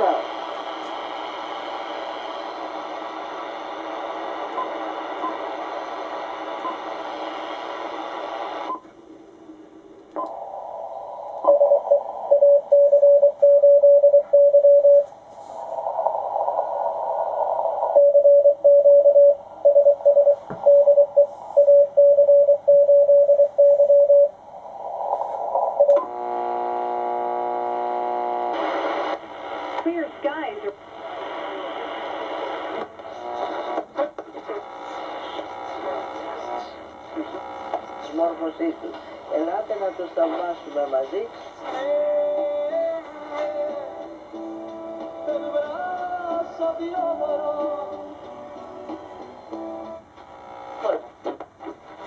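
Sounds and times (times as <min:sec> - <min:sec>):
steady radio buzz: 0:00.0 - 0:08.8, 0:24.5 - 0:47.0, 0:47.6 - 0:52.0
radio band hiss: 0:00.0 - 0:22.1, 0:23.5 - 0:52.0
morse code beeps: 0:11.5 - 0:15.1, 0:18.0 - 0:24.3.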